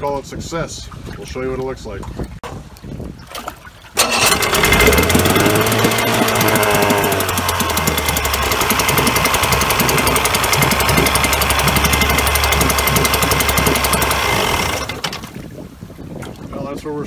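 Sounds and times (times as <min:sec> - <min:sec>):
outboard motor running: 0:04.0 - 0:15.6.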